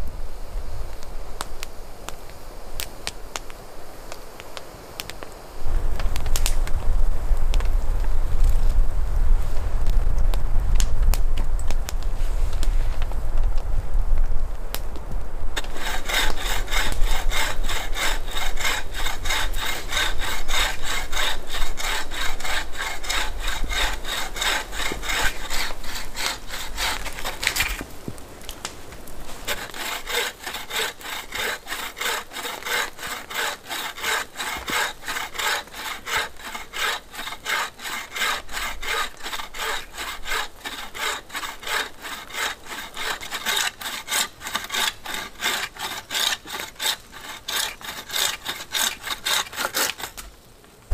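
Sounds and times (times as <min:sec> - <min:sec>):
saw cutting through branch: 0:15.6 - 0:27.9, 0:29.0 - 0:50.2.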